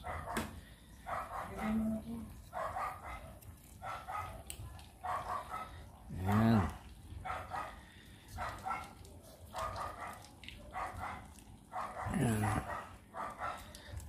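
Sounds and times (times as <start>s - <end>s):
dog barking: 0.0s - 6.4s, 7.2s - 14.0s.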